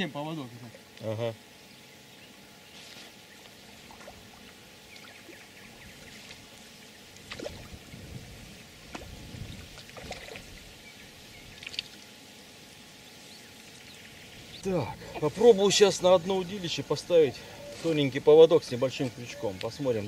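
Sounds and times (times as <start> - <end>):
water splashing and lapping: 3.7 - 10.7, 11.5 - 12.2.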